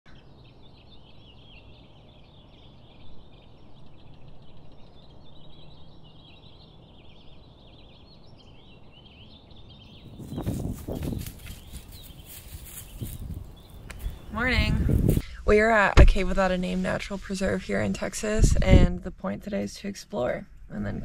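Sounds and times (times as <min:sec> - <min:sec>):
small birds chirping and singing: 0:00.1 - 0:21.0
low outdoor rumble: 0:10.0 - 0:21.0.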